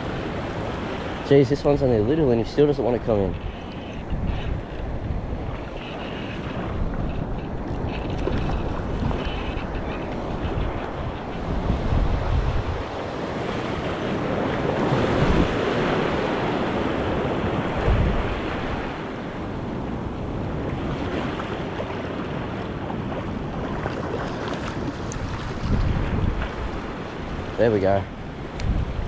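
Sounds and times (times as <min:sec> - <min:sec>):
small waves washing on beach: 0:00.0 - 0:29.0
wind buffeting microphone: 0:00.0 - 0:29.0.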